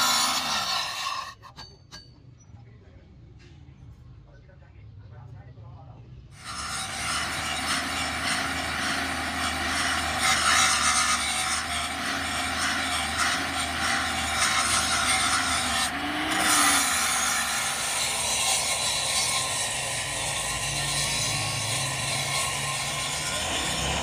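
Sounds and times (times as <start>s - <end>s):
grinder motor whine: 0.0s - 1.3s, 6.4s - 24.0s
angle grinder grinding metal: 0.0s - 2.1s, 6.4s - 24.0s.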